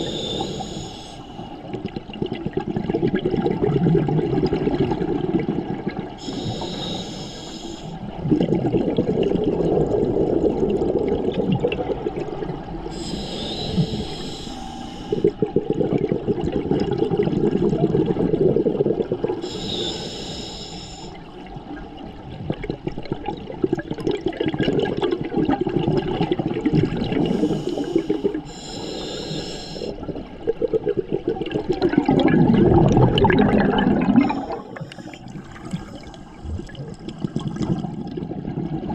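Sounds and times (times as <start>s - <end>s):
regulator hissing inhale: 0.0s - 1.7s, 6.2s - 8.0s, 12.9s - 15.4s, 19.4s - 21.2s, 27.2s - 30.0s, 34.2s - 35.4s
bubbling exhale: 0.0s - 21.2s, 23.7s - 38.9s.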